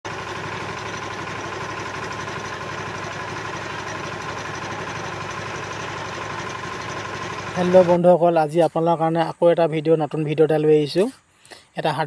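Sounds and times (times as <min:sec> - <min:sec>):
diesel tiller engine running: 0:00.0 - 0:08.2.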